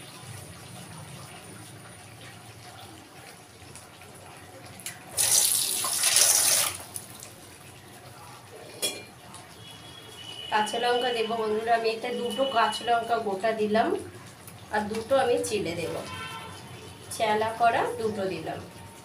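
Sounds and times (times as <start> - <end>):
water tap running: 5.0 - 7.3.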